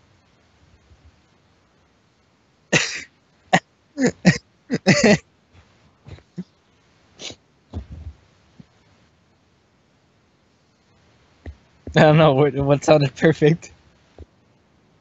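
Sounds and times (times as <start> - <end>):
person coughing: 2.8 - 3.1, 4.0 - 5.2.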